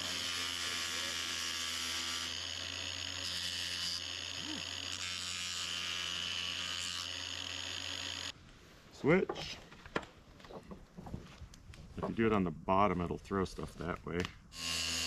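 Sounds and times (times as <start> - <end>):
angle grinder whining: 0.0 - 8.4, 14.5 - 15.0
wood grinding on abrasive disc: 0.0 - 8.4.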